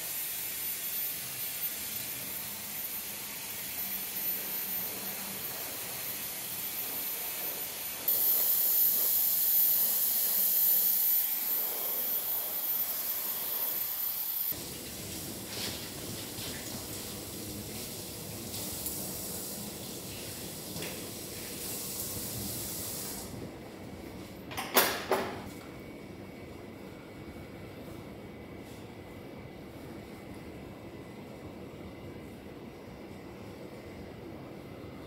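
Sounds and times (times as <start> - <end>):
hair dryer blowing: 0.0 - 14.6.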